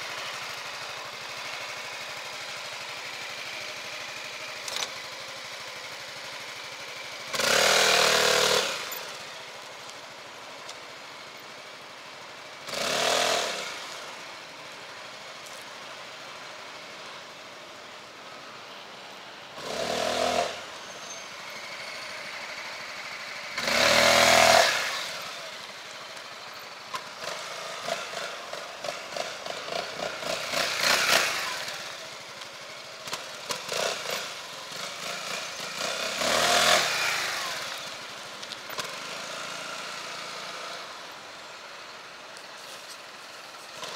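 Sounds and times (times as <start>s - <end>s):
scooter engine revving: 0.0s - 9.4s, 12.6s - 14.2s, 19.6s - 20.8s, 21.6s - 25.9s, 26.9s - 41.2s.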